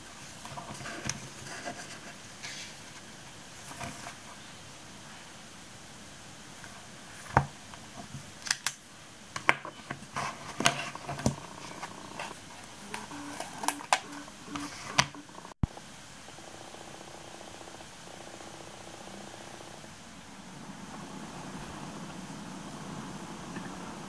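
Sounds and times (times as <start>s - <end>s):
notebook pages rustling: 0.1s - 4.3s, 9.6s - 15.6s.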